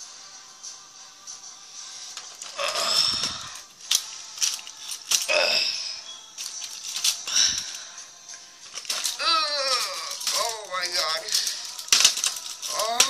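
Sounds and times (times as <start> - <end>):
plastic toy figures clacking: 3.2 - 5.3, 8.7 - 13.0.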